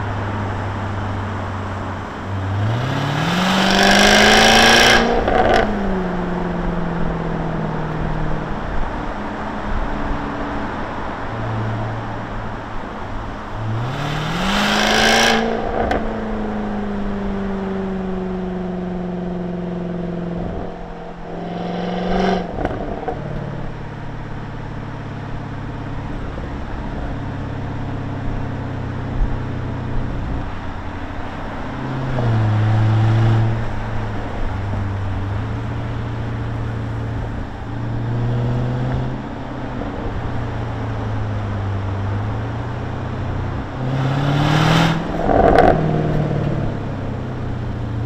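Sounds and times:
car engine revving: 0.0s - 48.0s
road and wind noise: 0.0s - 48.0s.

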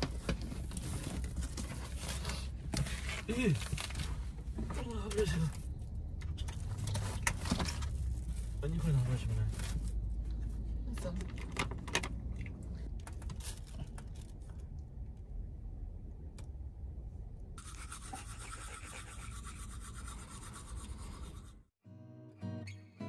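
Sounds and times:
low background rumble: 0.0s - 21.7s
toothbrush scrubbing teeth: 17.6s - 21.4s
acoustic guitar music: 21.8s - 23.0s.

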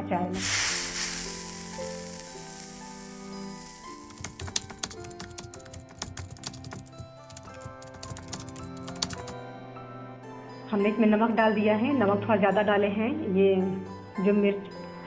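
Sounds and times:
background music with held notes: 0.0s - 15.0s
tv static hiss: 0.4s - 5.0s
keyboard clicks: 4.1s - 9.3s.

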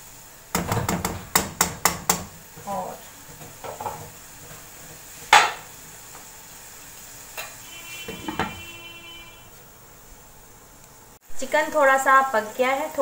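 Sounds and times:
soft sizzle: 0.0s - 13.0s
knocks on wok: 0.5s - 2.4s, 5.3s - 5.6s, 8.1s - 8.7s
cookware clatter: 7.4s - 8.7s
glass lid ringing: 8.1s - 8.8s.

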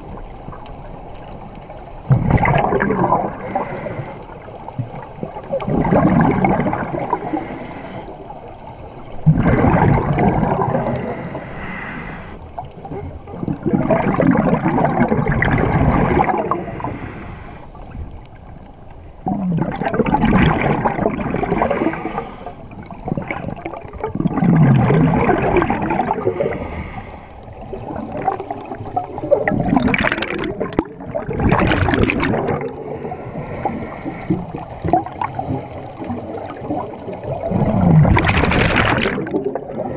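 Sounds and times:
exhaled bubbles gurgling: 0.0s - 18.3s, 19.2s - 39.9s
diver inhaling through regulator: 3.1s - 4.5s, 6.8s - 8.8s, 10.4s - 12.5s, 15.6s - 17.9s, 21.6s - 22.8s, 26.0s - 27.6s, 32.4s - 34.7s.

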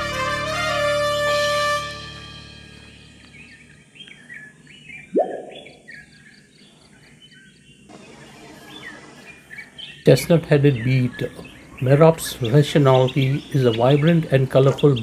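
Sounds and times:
birds chirping: 2.8s - 15.0s
upward-sweeping sound: 5.2s - 5.9s.

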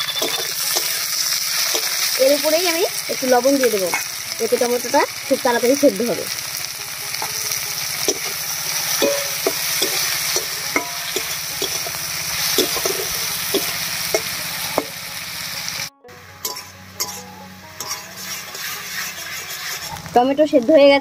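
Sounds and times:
metal spatula scraping and tapping pan: 0.0s - 2.0s, 8.0s - 14.9s, 16.4s - 17.2s, 17.8s - 20.2s
vegetables sizzling in hot oil: 0.0s - 21.0s.

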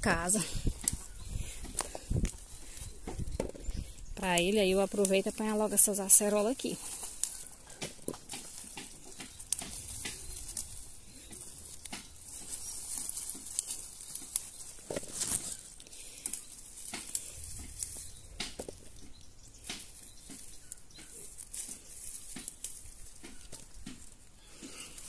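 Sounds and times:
leaves and twigs rustling: 0.0s - 25.0s
small twig snaps: 6.9s - 19.0s, 19.6s - 24.2s.

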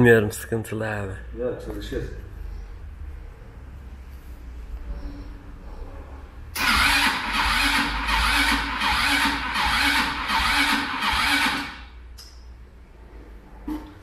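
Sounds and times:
engine starter cranking: 6.6s - 11.8s.

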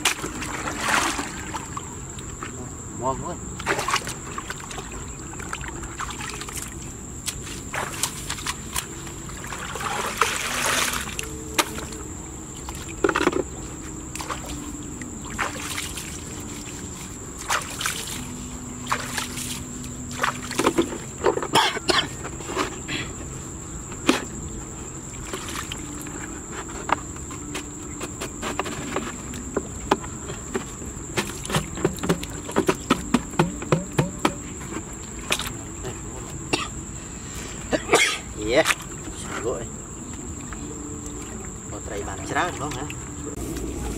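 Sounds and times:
muddy water splashing: 0.0s - 2.7s, 3.5s - 22.9s, 24.0s - 36.2s, 37.9s - 43.9s
high-pitched insect drone: 0.0s - 43.9s
plastic bucket knocks: 30.6s - 34.5s.

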